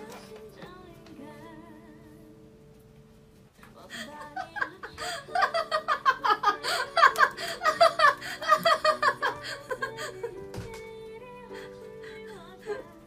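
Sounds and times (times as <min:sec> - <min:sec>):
faint background music: 0:00.0 - 0:13.0
person giggling: 0:03.9 - 0:10.4.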